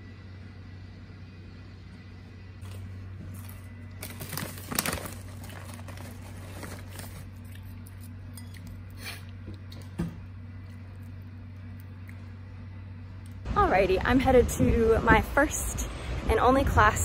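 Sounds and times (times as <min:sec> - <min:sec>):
steady low hum: 0:00.0 - 0:17.0
crackers crunching and crinkling: 0:02.6 - 0:12.4.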